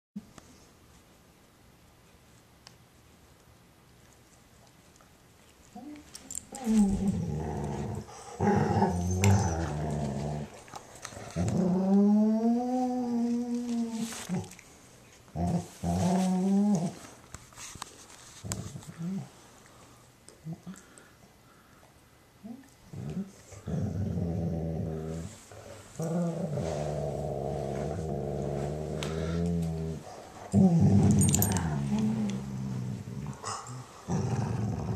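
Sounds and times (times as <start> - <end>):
dog moaning: 5.8 - 10.6.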